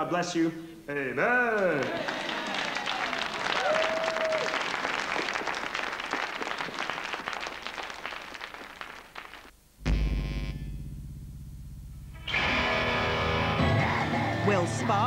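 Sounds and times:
crowd applauding: 1.6s - 9.5s.

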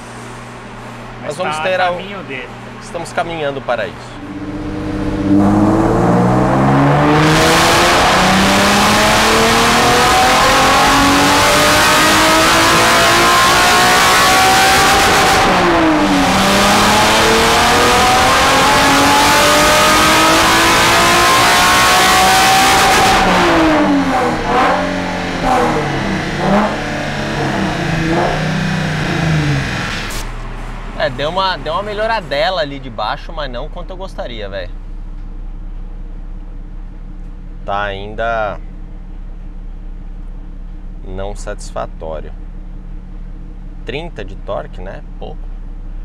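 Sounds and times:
car engine revving on dyno: 4.2s - 32.6s.

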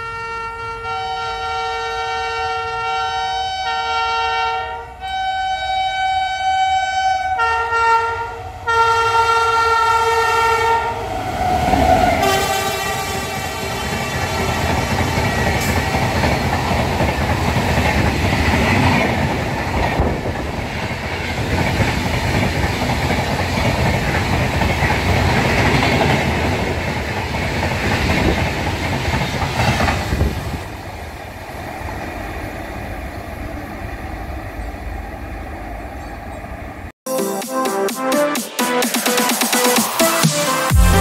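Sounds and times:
train wheels clattering on rails: 12.2s - 31.0s.

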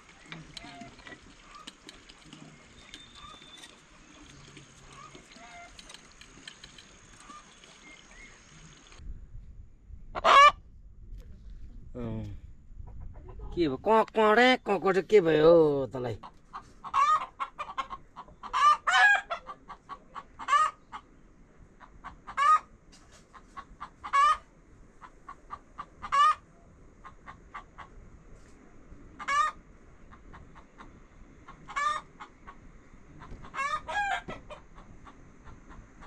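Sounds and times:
chickens clucking: 0.0s - 9.0s, 12.8s - 13.7s, 16.2s - 21.2s, 21.8s - 22.7s, 23.3s - 26.4s, 29.2s - 36.0s.

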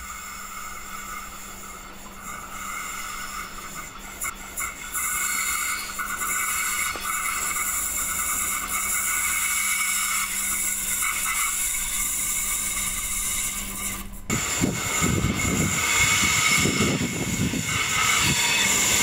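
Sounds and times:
diesel railcar approaching: 0.0s - 19.0s.

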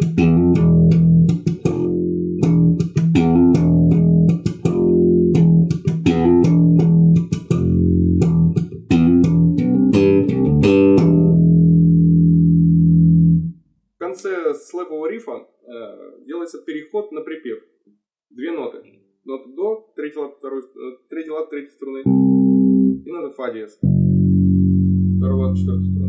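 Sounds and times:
slap bass riff: 0.0s - 13.6s, 22.0s - 23.1s, 23.8s - 26.0s.

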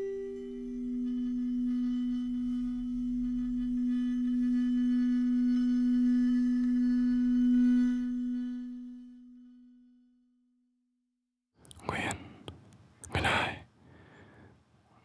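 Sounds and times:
low ringing drone: 0.0s - 10.3s.

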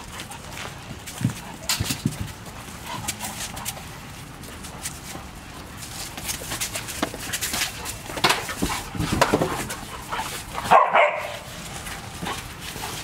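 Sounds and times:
dogs scuffling: 0.0s - 13.0s
dog barking: 10.6s - 11.5s.

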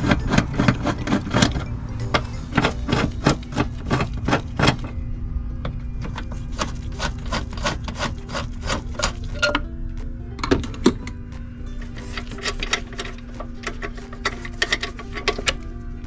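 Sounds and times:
ratchet wrench clicking: 12.1s - 15.6s.

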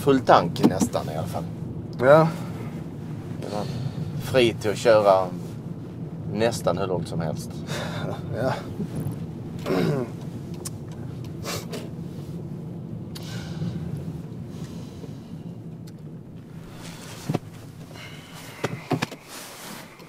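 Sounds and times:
car interior hum: 0.0s - 20.0s
clothing rustling: 16.4s - 20.0s.

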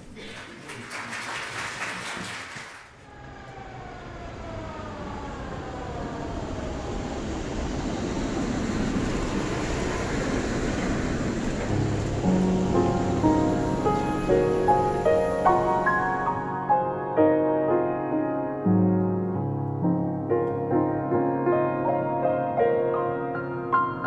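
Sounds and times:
train rumble: 3.0s - 16.4s
train horn chord sliding down: 11.6s - 16.8s.

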